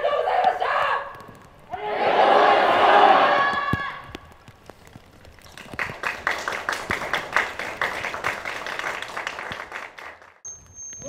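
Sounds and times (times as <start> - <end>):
crowd clapping: 5.4 - 10.4.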